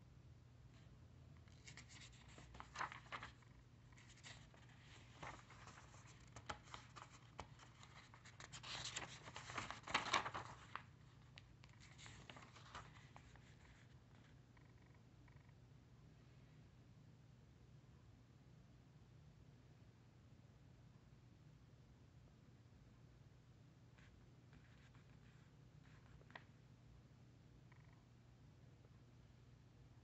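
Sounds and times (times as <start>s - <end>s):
low steady hum: 0.0s - 30.0s
paper pages rustling: 1.5s - 14.3s, 24.6s - 26.6s.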